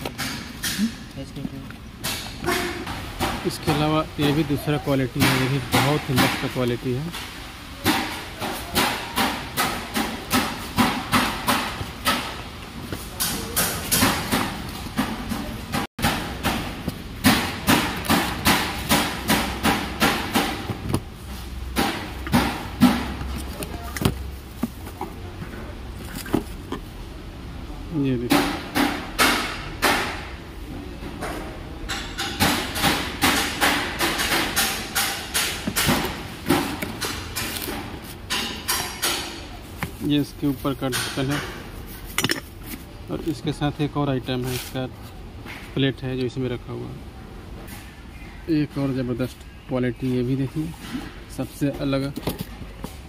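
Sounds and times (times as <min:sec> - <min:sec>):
sharp knocks: 0:13.2 - 0:21.1, 0:21.7 - 0:23.4, 0:31.2 - 0:40.0.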